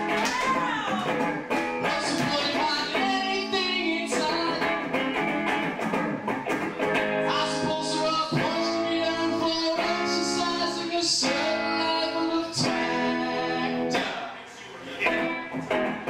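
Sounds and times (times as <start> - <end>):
electric guitar: 0.0 - 14.3, 14.9 - 16.0
man singing: 1.8 - 5.0, 7.2 - 14.4.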